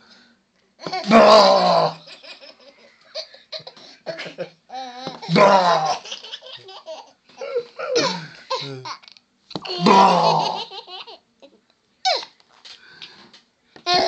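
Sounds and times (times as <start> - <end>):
baby laughing: 4.7 - 9.0, 9.6 - 11.2.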